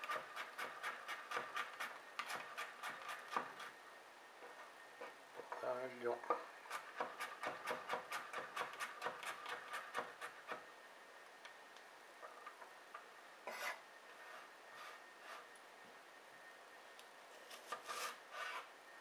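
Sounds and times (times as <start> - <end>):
knife scraping board: 0.0 - 3.8, 13.4 - 15.5, 17.5 - 18.7.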